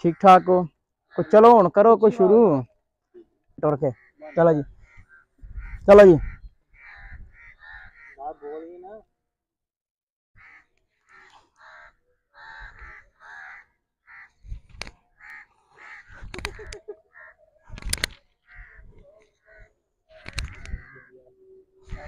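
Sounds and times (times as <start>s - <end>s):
crow cawing: 0.1s - 2.3s, 3.7s - 8.8s, 10.4s - 22.0s
sharp clicks: 14.7s - 15.4s, 16.3s - 16.8s, 17.7s - 18.3s, 20.2s - 20.9s.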